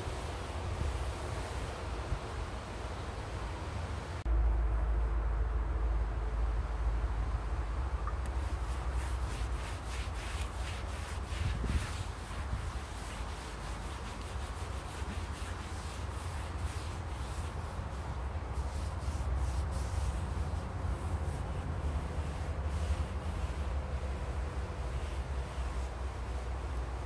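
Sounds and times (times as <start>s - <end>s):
rubbing or scrubbing strokes: 0.0s - 2.3s, 8.3s - 27.0s
steady low rumble: 0.0s - 15.0s.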